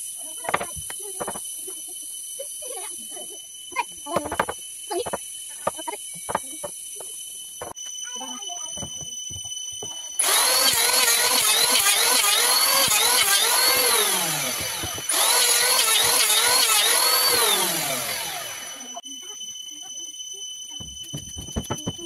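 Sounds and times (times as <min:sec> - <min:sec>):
electric hand planer cutting wood: 0:10.2 - 0:18.9.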